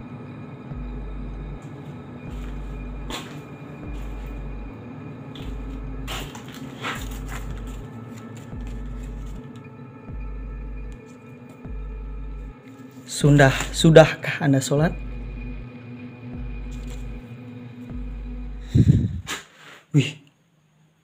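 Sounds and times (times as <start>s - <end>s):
deep pulse: 0.0s - 11.0s, 11.6s - 12.6s, 13.2s - 14.1s, 14.8s - 19.3s
dark ambient drone music: 0.0s - 19.3s.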